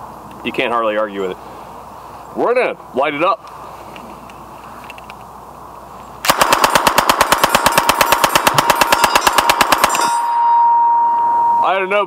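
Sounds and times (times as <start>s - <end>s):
submachine gun full-auto burst: 6.2s - 10.2s
steady ringing tone: 7.3s - 12.0s.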